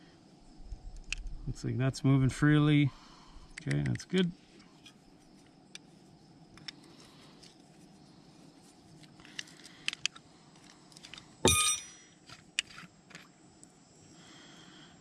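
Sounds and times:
ringing metal clink: 11.4 - 12.1.

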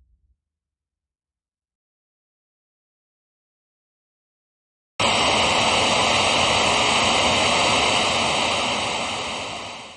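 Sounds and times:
loud static hiss: 5.0 - 9.9.

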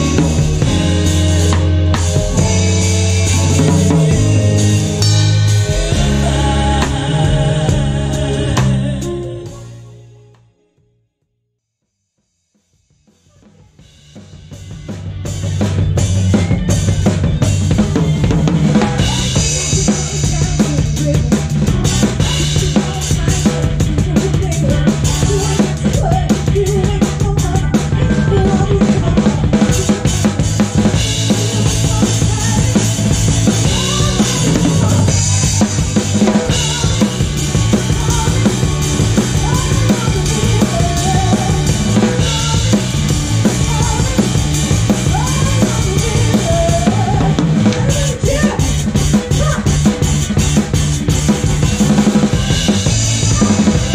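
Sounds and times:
drum kit playing: 0.0 - 10.2, 12.5 - 53.9
live band playing: 0.0 - 10.2, 13.7 - 53.9
bass line: 0.0 - 11.2, 13.2 - 53.9.

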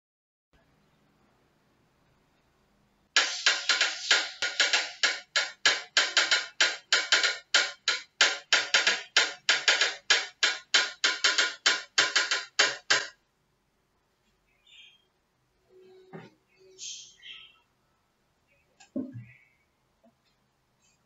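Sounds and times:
electronic drum loop: 3.2 - 13.2.

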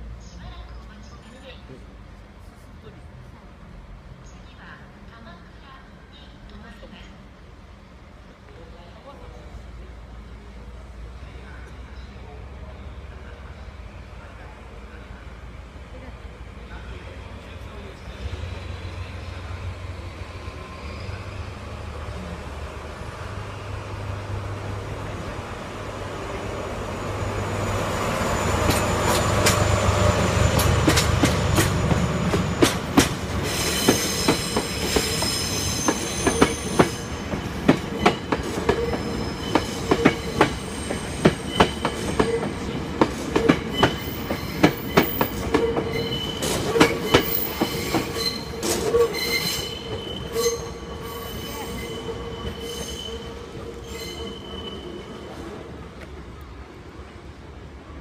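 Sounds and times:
locomotive engine humming: 12.5 - 58.0
high wheel squeal: 20.1 - 21.7, 26.6 - 37.3, 37.9 - 42.5, 43.4 - 55.4
wheels clacking over rail joints: 28.6 - 50.4.

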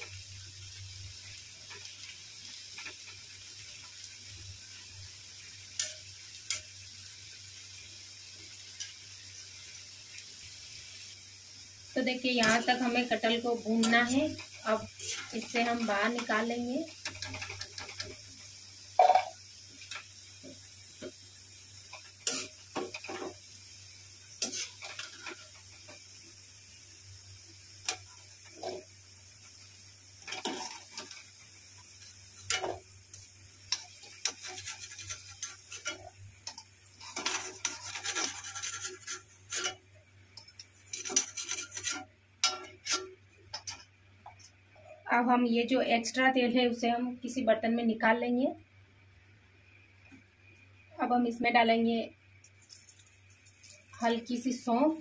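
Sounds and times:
oil sizzling: 0.0 - 55.0
metal ladle scraping iron pan: 22.2 - 23.4, 30.3 - 31.1, 32.4 - 32.8, 33.7 - 39.8, 40.4 - 43.9.

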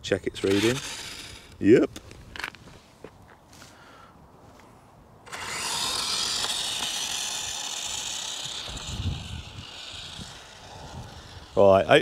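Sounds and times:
toy truck motor and gear whine: 0.0 - 1.9, 5.2 - 12.0.

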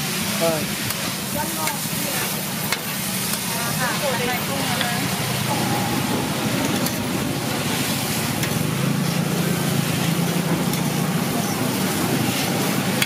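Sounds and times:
noodles cooking in liquid: 0.0 - 5.5, 7.1 - 13.0
steady rushing noise: 4.6 - 11.3
low hum: 5.4 - 9.0.

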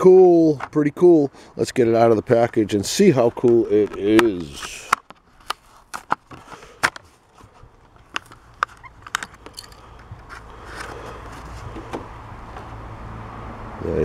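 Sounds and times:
plastic and card rustling: 2.3 - 11.9
plastic blister pack crackling: 3.2 - 11.3.

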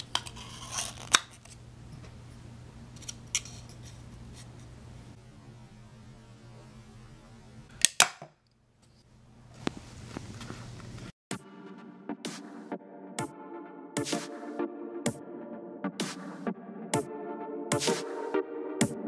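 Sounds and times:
steady low hum: 1.4 - 7.7.

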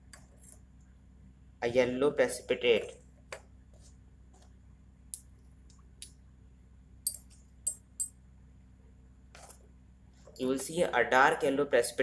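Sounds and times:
dropper tapping glass test tubes: 7.0 - 8.2.

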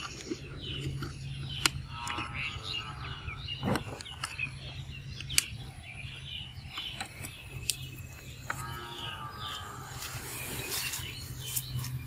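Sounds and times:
birds chirping: 0.0 - 12.0
sharp clicks: 3.7 - 5.7.

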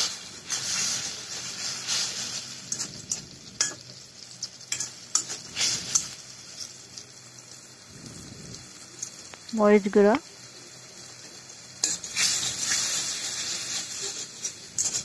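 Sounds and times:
paste sizzling in oil: 0.0 - 15.0
spatula scraping a metal pan: 11.8 - 15.0.

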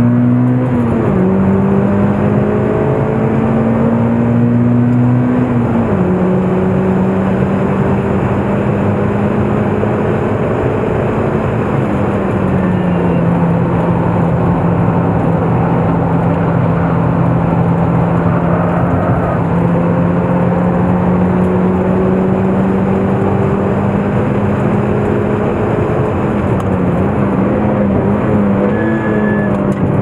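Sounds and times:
car engine at high revs: 0.0 - 30.0
constant rushing noise: 21.4 - 30.0.

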